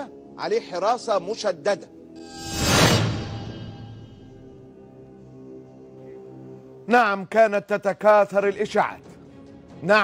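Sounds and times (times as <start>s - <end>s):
background music: 0.0s - 10.0s
whoosh: 2.2s - 4.5s.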